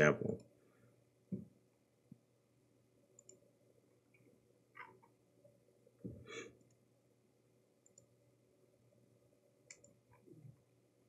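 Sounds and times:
computer mouse clicks: 0:03.2 - 0:03.4, 0:07.8 - 0:08.1, 0:09.7 - 0:10.2.

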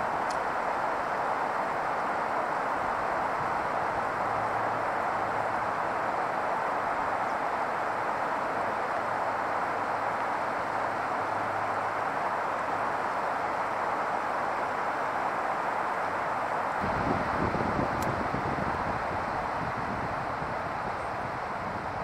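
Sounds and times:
steady rushing outdoor noise: 0:00.0 - 0:22.0.

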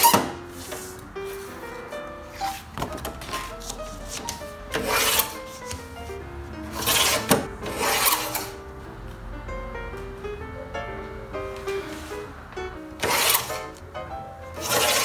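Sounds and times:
light music with plucked notes: 0:00.0 - 0:15.0
paper trimmer slicing paper: 0:04.7 - 0:05.4, 0:06.7 - 0:08.5, 0:13.0 - 0:13.6, 0:14.6 - 0:15.0.

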